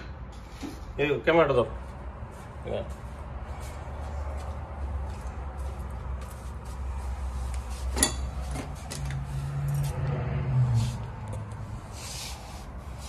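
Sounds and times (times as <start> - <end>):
handling noise with clicks and clinks: 7.5 - 10.2.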